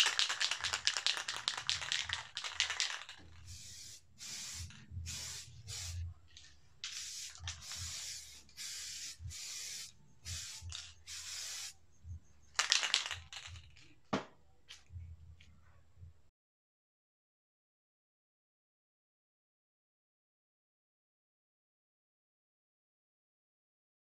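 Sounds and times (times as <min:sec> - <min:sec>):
spray paint can hissing: 0:00.0 - 0:06.1, 0:06.8 - 0:11.8, 0:12.6 - 0:13.5
crackling spray burst: 0:06.9 - 0:11.8.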